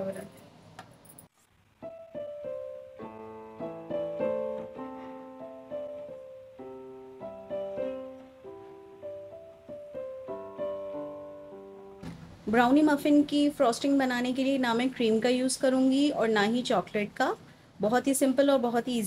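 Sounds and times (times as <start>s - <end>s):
piano music: 1.8s - 14.4s.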